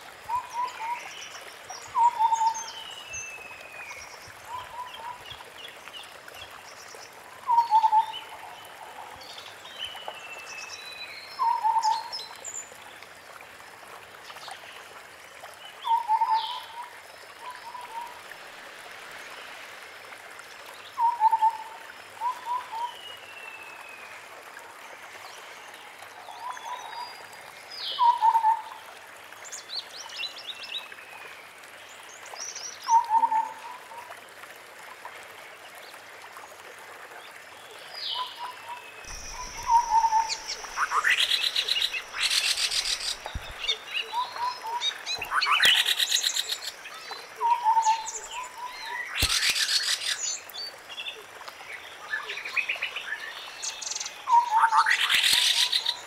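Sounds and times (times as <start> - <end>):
low mellow hooting bird calls: 38.1 - 45.9
harsh rattling bird chatter: 39.1 - 43.7.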